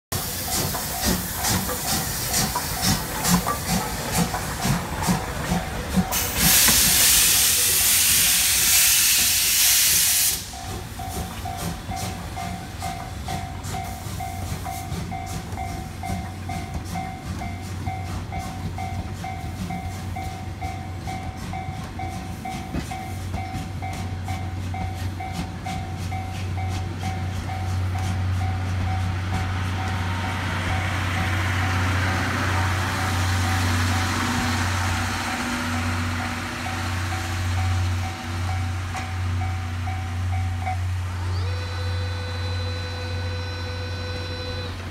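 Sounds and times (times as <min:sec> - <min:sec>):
loud hiss of steam: 0:00.1 - 0:12.8
steam locomotive chuffing: 0:00.1 - 0:44.9
level-crossing alarm dinging: 0:36.6 - 0:44.8.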